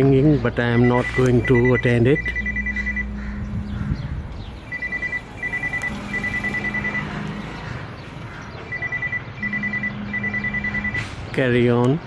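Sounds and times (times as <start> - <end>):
mobile phone ringing: 0.7 - 3.7, 4.6 - 7.6, 8.6 - 11.0.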